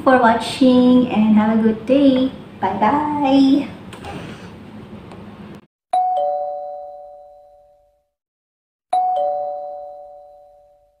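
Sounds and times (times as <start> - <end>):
two-note doorbell chime: 6.0 - 8.0, 8.9 - 11.0.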